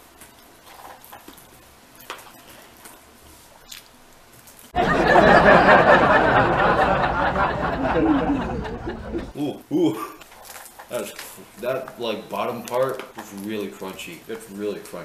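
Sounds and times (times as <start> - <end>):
chewing crunches: 3.6 - 4.7.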